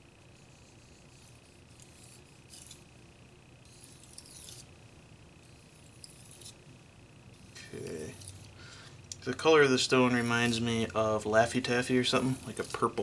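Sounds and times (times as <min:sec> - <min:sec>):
knife scraping on whetstone: 0:00.4 - 0:02.8, 0:03.7 - 0:04.7, 0:05.5 - 0:06.6, 0:07.4 - 0:08.6, 0:11.8 - 0:13.0.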